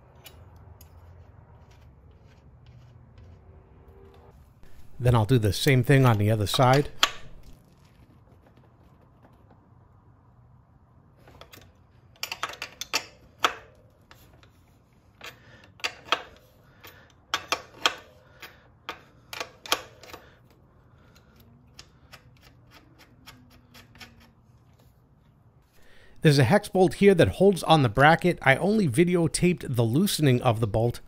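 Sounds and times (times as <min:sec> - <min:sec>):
wrench clicking on axle nut: 0:06.7 - 0:07.5, 0:15.2 - 0:20.5, 0:21.7 - 0:24.3.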